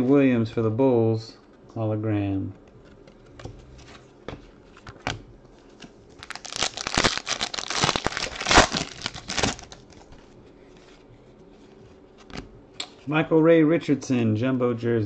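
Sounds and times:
foil wrapper tearing and crinkling: 6.2 - 10.1.

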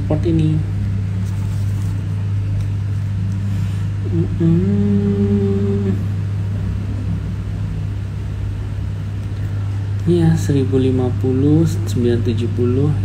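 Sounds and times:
low background hum: 0.0 - 13.0
man humming hmm: 4.0 - 6.3.

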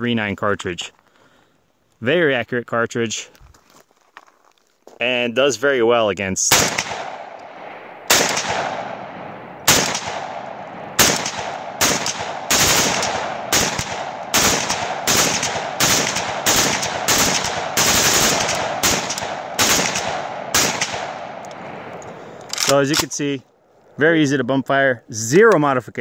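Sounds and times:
rifle gunshots with echo: 6.5 - 23.1.

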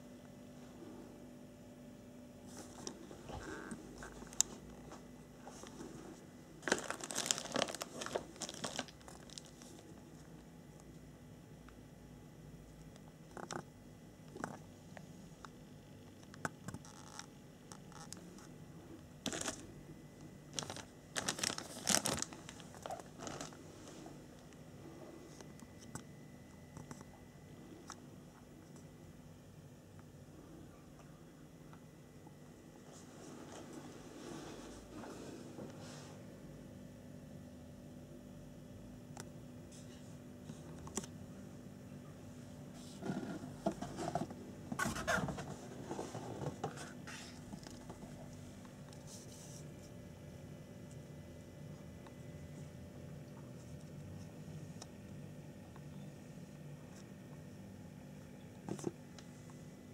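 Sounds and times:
faint steady hum: 0.0 - 59.9
plastic bags crinkling: 6.6 - 10.0, 19.2 - 19.7, 20.5 - 23.6
cardboard scraping and rustling: 42.8 - 47.8.

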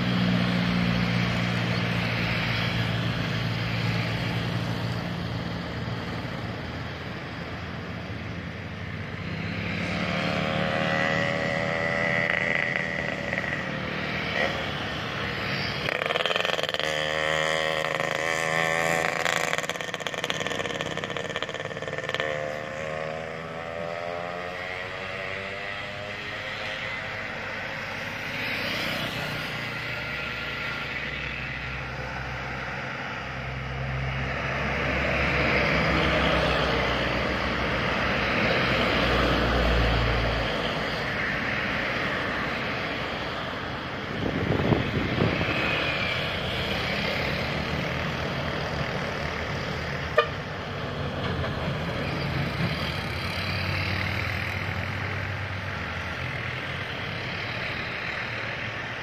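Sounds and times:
heavy diesel engine: 0.0 - 23.7, 24.4 - 59.0
vehicles passing: 0.0 - 59.0.

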